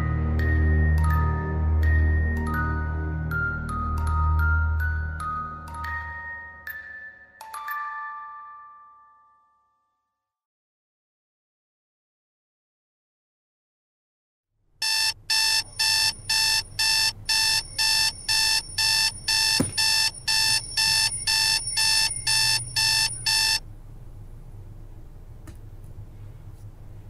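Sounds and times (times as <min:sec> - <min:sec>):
alarm clock beeping: 0:14.8 - 0:23.6.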